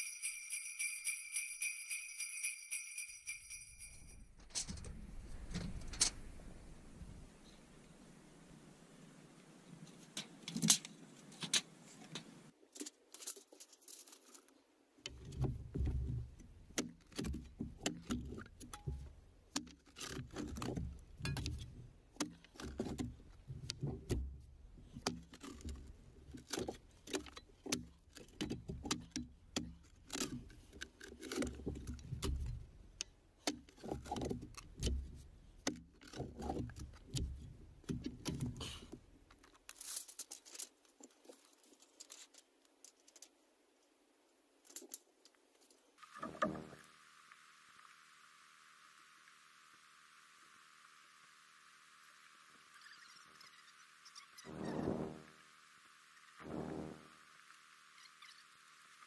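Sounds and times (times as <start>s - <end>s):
light metallic clinks: 0.0s - 4.6s.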